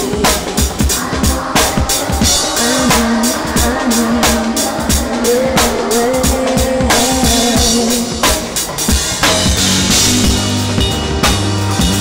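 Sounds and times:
drum-kit beat: 0.0s - 12.0s
live band music: 0.0s - 12.0s
bass line: 9.1s - 12.0s.

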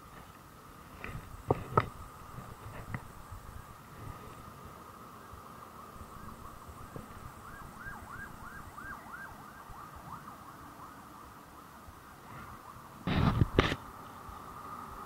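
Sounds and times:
low background noise: 0.0s - 15.0s
distant siren yelping: 5.1s - 13.0s.

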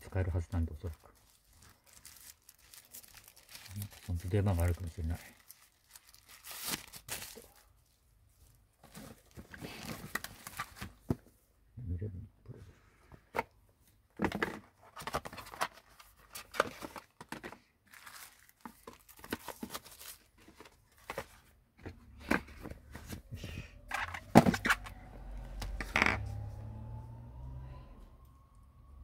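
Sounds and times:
plastic parts rustling and clicking: 14.2s - 23.2s, 23.9s - 25.0s
faint rising whine: 24.8s - 29.0s.

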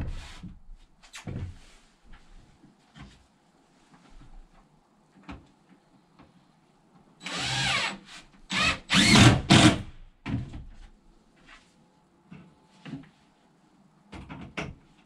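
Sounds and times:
cordless drill into wood: 7.2s - 9.9s.

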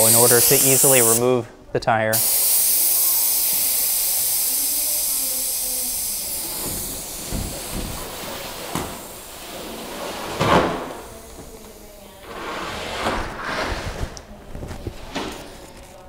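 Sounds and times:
air hissing from tyre valve: 0.0s - 1.3s, 2.1s - 12.3s.

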